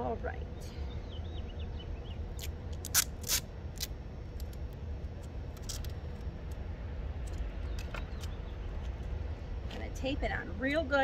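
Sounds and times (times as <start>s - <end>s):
steady low rumble: 0.0s - 11.0s
sticky tape ripping: 2.4s - 4.6s, 5.5s - 6.0s.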